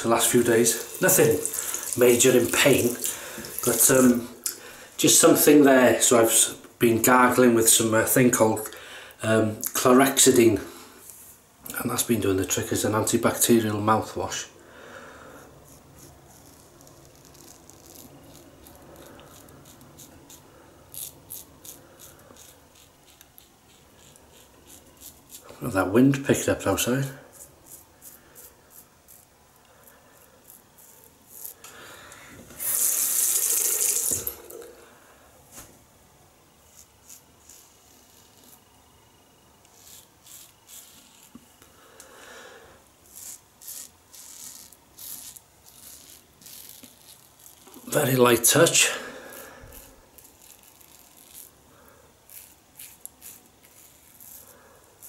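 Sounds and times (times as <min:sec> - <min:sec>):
razor scraping stubble: 0:00.0 - 0:04.2, 0:15.6 - 0:29.3, 0:30.1 - 0:31.7, 0:36.6 - 0:38.8, 0:39.6 - 0:41.6, 0:43.0 - 0:51.6, 0:52.3 - 0:55.0.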